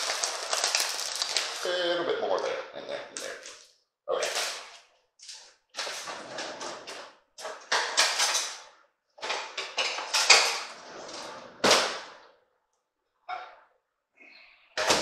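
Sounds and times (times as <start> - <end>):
rustling and crinkling: 0.0 - 1.8.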